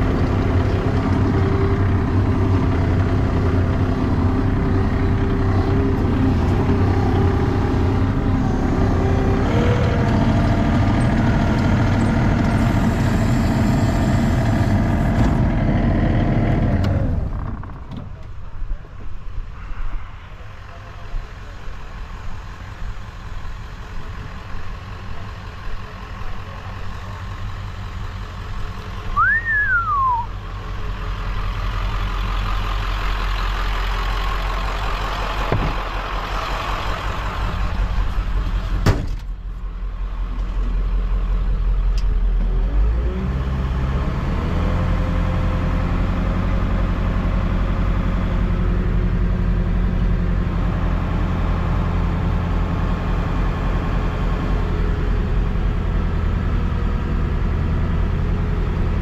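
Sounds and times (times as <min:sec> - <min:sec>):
diesel engine idling: 0:00.0 - 0:19.4, 0:20.3 - 0:42.4.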